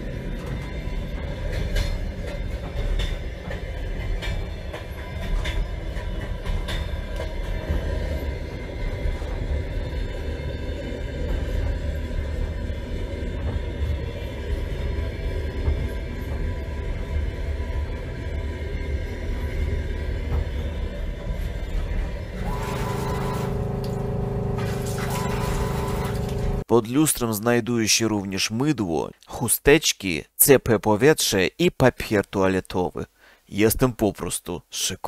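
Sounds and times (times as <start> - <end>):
train low rumble: 0.0 - 26.7.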